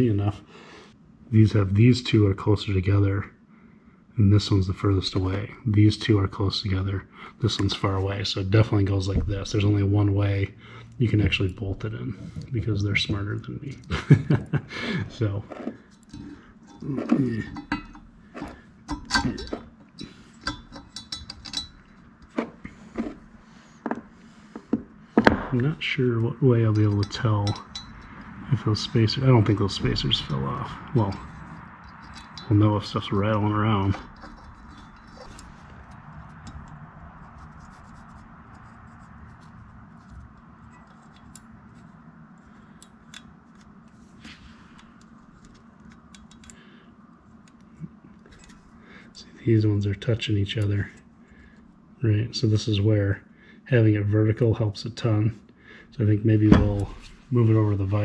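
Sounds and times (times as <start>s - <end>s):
low room hum: 0.0s - 58.0s
light metallic clicks and clinks: 15.9s - 22.3s, 26.6s - 28.4s, 29.2s - 33.2s, 40.0s - 43.3s.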